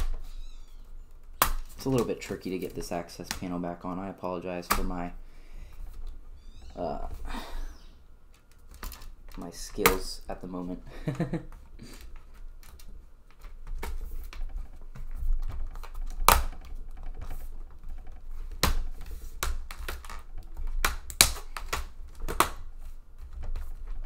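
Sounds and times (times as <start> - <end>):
low rubbing and handling noise: 11.5 - 20.6.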